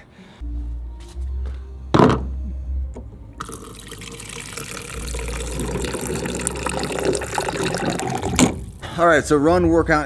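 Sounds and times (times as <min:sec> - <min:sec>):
water pouring into plastic bottle: 0:03.4 - 0:08.8.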